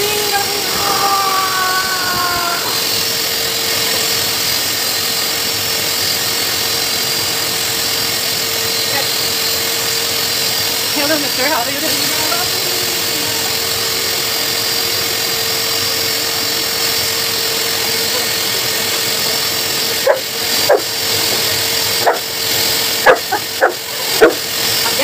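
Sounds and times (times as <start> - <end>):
blow dryer blowing: 0.0 - 25.0
dog barking: 20.0 - 20.9, 22.0 - 22.4, 23.0 - 24.5.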